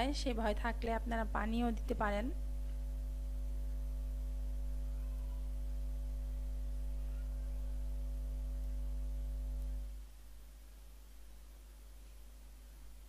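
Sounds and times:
electrical hum: 0.0 - 13.0.

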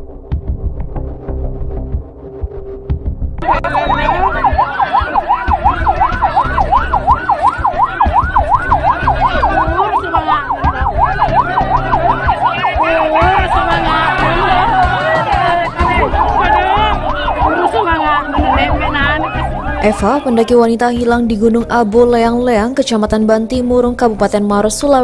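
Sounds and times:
low throbbing pulse: 0.0 - 25.0
electronic siren yelping: 3.4 - 21.3.

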